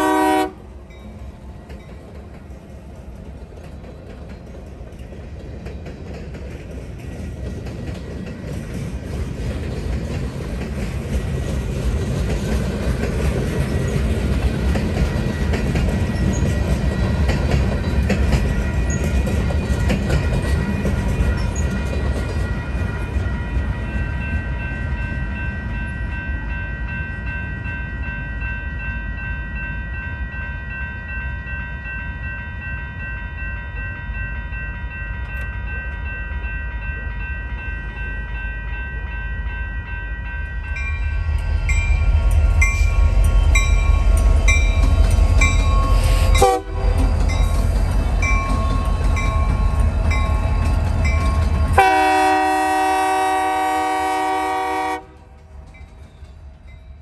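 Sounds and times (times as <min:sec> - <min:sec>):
crossing warning bell ringing: 0:00.0 - 0:02.4, 0:10.6 - 0:57.0
freight train rumbling past: 0:00.0 - 0:57.0
wheels clicking over rails: 0:01.6 - 0:23.3.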